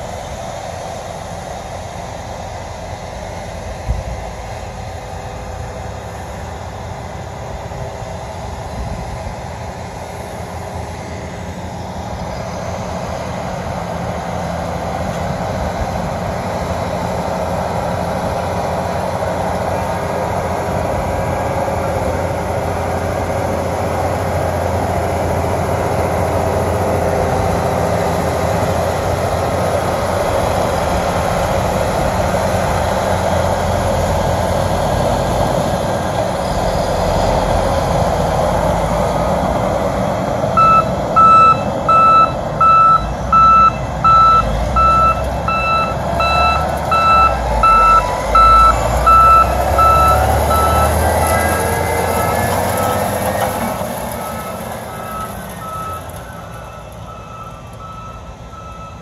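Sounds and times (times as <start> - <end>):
diesel engine rumbling: 0.0 - 59.0
reversing alarm beeping: 40.5 - 59.0.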